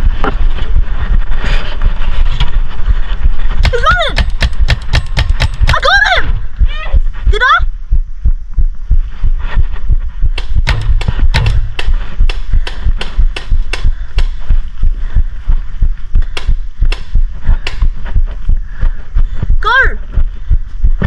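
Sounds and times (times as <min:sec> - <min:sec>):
paintball marker firing: 0:03.6 - 0:05.8, 0:10.4 - 0:14.4, 0:16.4 - 0:17.8.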